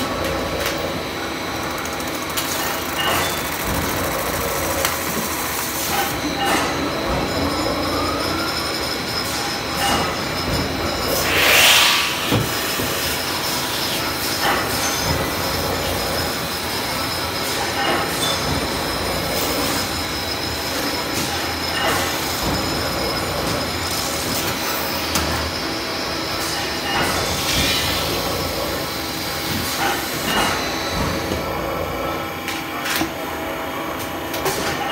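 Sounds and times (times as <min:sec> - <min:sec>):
high tone of metal on metal: 0:11.0 - 0:13.4
hissing surge: 0:11.0 - 0:13.7.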